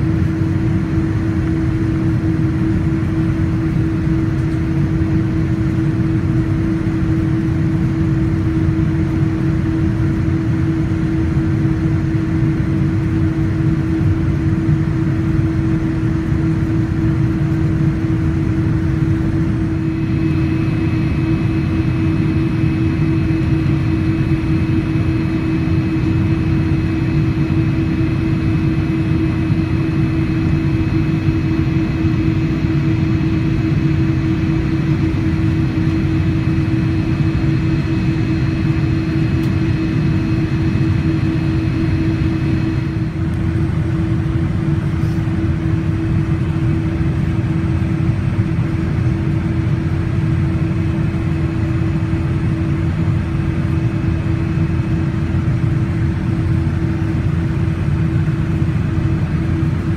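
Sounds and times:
jet engine rushing drone: 0.0 - 59.9
thin high whine: 17.6 - 46.1.

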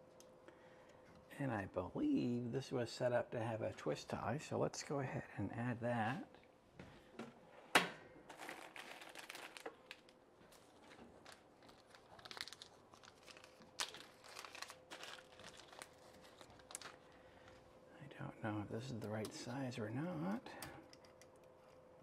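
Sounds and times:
packaging crinkling and rustling: 8.3 - 17.6.

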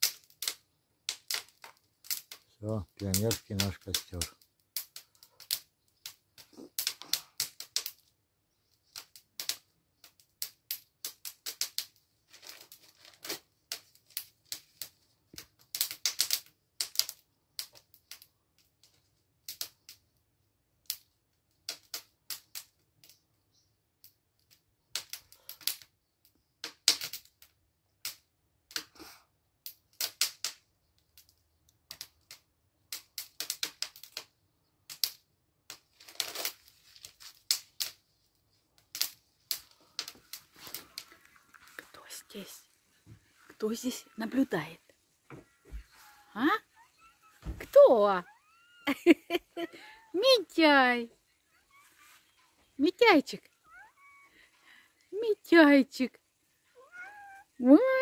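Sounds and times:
wood fire crackling and popping: 0.0 - 23.3, 24.0 - 57.8.

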